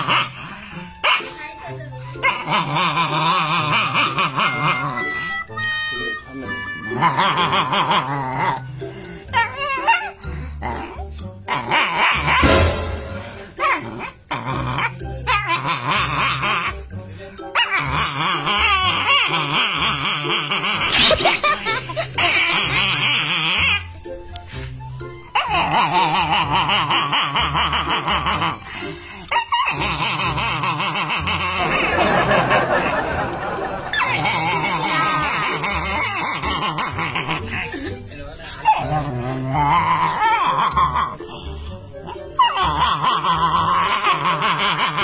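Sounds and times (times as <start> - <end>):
dog growling and snarling: 0.0 - 5.2, 6.8 - 16.9, 17.5 - 23.9, 25.3 - 32.3, 33.5 - 41.3, 41.9 - 45.0
background music: 0.0 - 45.0
dog barking: 1.0 - 1.5
snickering laughter: 18.0 - 23.8, 25.5 - 28.9, 29.7 - 38.0, 42.1 - 45.0.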